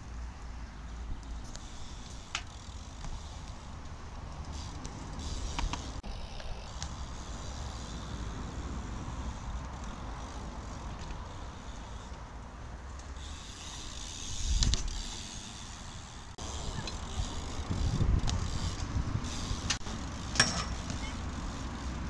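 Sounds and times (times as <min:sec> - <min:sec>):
bike tyres rolling on asphalt: 0:00.0 - 0:22.0
wind rumbling on microphone: 0:14.1 - 0:15.2, 0:16.4 - 0:20.1.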